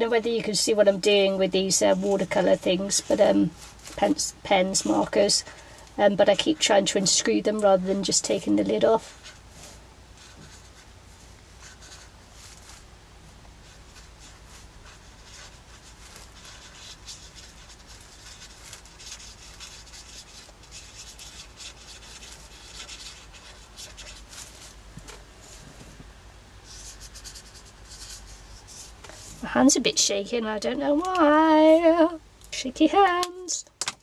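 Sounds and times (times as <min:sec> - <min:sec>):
marker scratching on paper: 0:00.4 - 0:05.4, 0:06.4 - 0:09.4, 0:10.2 - 0:10.9, 0:11.6 - 0:12.8, 0:13.6 - 0:24.8, 0:26.6 - 0:29.6.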